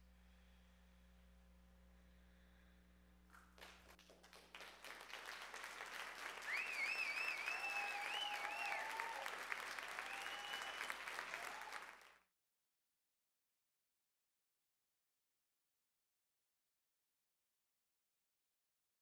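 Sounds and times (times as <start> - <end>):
audience applauding: 3.6 - 12.2
high wavering whistle: 6.5 - 9.0, 10.0 - 11.0.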